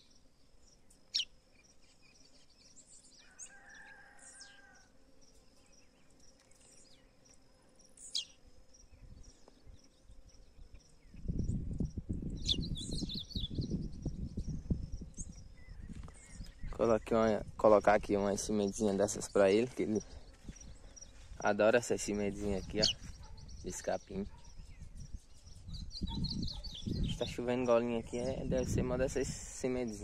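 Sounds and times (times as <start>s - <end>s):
high bird chirps: 8.0s - 8.4s, 12.3s - 16.8s, 22.4s - 27.3s
low rumble on microphone: 10.4s - 21.4s, 22.2s - 29.9s.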